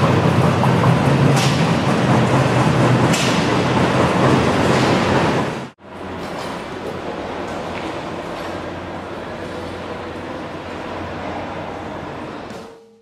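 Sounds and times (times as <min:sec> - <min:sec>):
trolley clanks: 0:00.0 - 0:08.6
tugger train running noise: 0:00.0 - 0:12.7
quiet logistic train running: 0:00.0 - 0:13.0.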